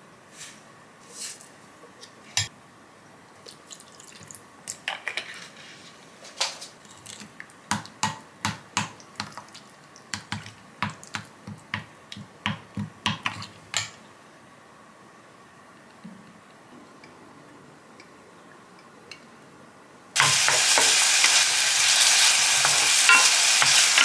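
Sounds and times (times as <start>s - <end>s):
spoon clinking against glass bowl: 23.1s - 23.4s.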